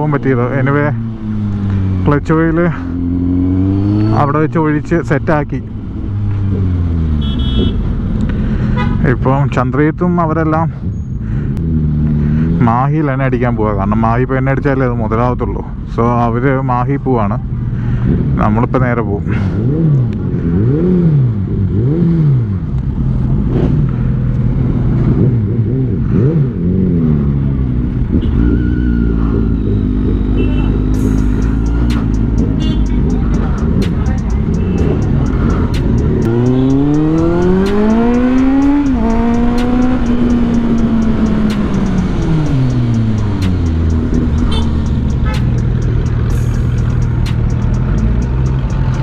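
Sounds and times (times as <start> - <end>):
motorcycle engine revving: 0.0 - 8.0, 19.3 - 49.0.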